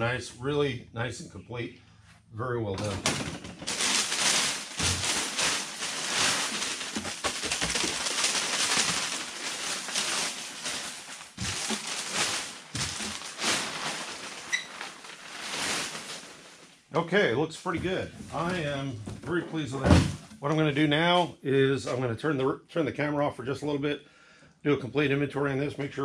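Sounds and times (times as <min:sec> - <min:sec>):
packing material crinkling: 0:02.8 - 0:16.9.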